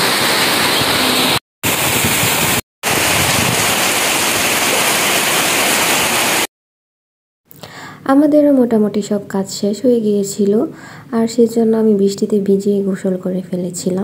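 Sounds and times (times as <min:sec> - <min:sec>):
heavy rain pouring: 0:00.0 - 0:06.5.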